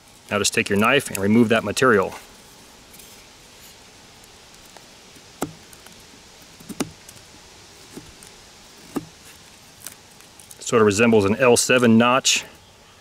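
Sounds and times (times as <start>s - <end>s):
knife carving wood clicks: 4.5s - 7.2s.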